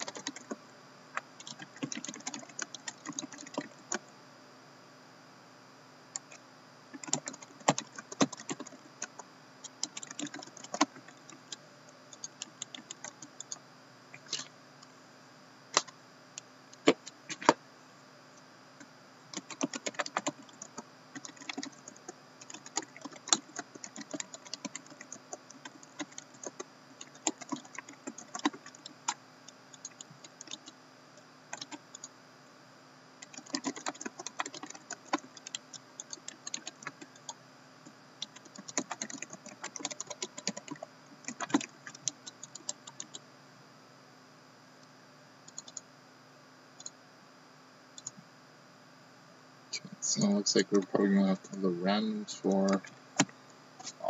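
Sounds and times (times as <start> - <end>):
laptop keyboard typing: 0.0 - 0.6, 1.2 - 4.0, 6.2 - 13.6, 16.8 - 17.6, 19.3 - 30.8, 31.5 - 32.1, 33.2 - 37.4, 38.2 - 43.2, 45.5 - 45.8, 48.0 - 48.2.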